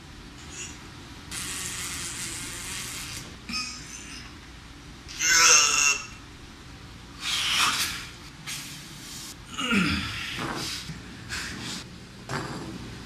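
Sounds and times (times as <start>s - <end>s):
man grunting: 9.5s - 10.6s
man straining: 9.5s - 10.7s.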